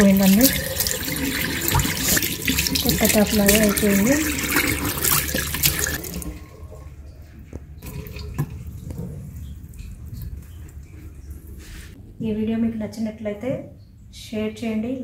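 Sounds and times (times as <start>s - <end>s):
tap water running into basin: 0.0s - 12.0s.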